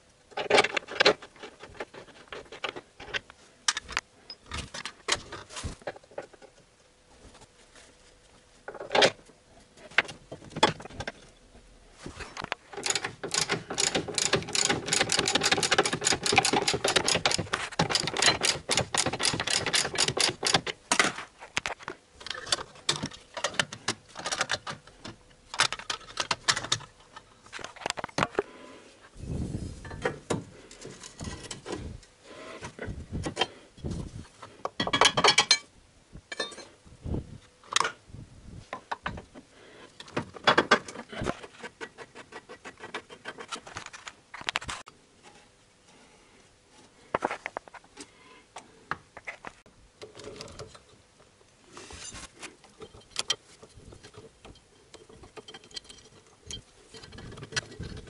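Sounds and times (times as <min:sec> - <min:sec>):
tools and metal parts knocking: 0:12.7 - 0:21.1, 0:34.8 - 0:35.7, 0:52.7 - 0:58.0.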